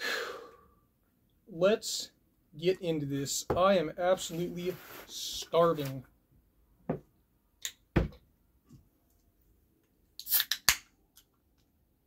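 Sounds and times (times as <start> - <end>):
soda can popping open: 10.2 - 10.9.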